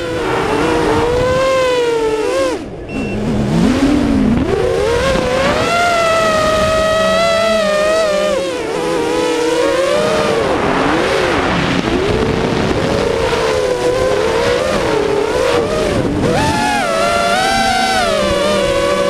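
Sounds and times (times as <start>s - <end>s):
quadcopter motors whining: 0.0s - 19.0s.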